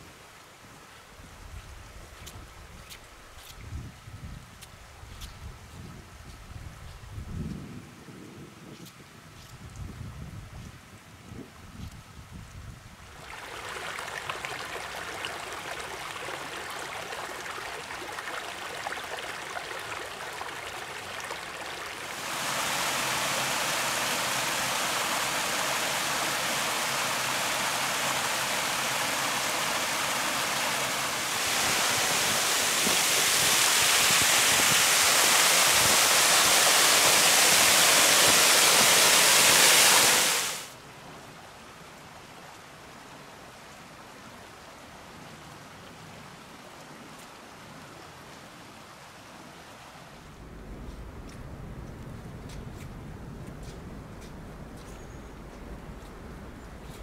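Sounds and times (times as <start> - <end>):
stream waterfall rushing: 13.1 - 40.8.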